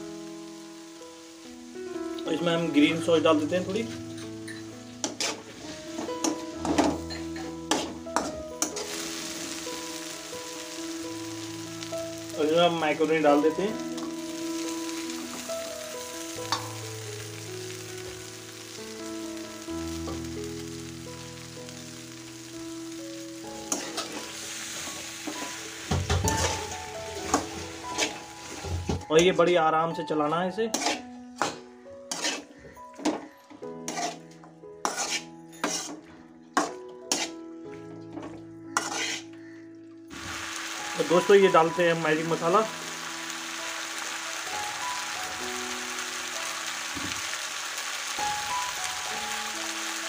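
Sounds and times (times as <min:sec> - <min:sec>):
food sizzling in a pan: 0:00.0 - 0:29.1, 0:30.7 - 0:37.4, 0:38.6 - 0:50.0
soft background music: 0:00.0 - 0:50.0
spatula scraping a metal pan: 0:04.2 - 0:09.0, 0:23.7 - 0:24.3, 0:30.7 - 0:32.7, 0:33.8 - 0:34.2, 0:34.8 - 0:37.4, 0:38.7 - 0:39.3.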